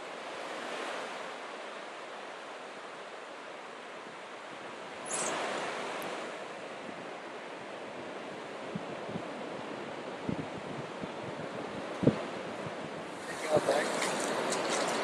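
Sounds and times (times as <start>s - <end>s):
ocean surf washing on beach: 0.0s - 15.0s.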